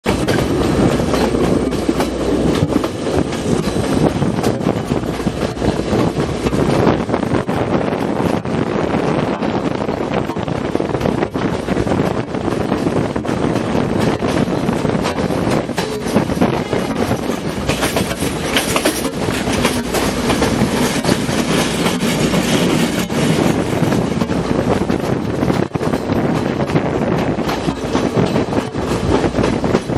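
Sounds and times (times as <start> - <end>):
passenger train rumble: 0.0 - 29.9
wheels clattering on rails: 0.0 - 29.9.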